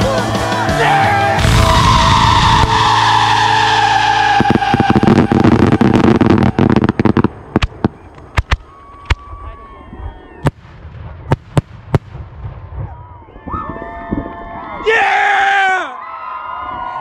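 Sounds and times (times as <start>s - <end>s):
fireworks bursting and cracking: 1.3s - 9.4s, 10.4s - 13.1s.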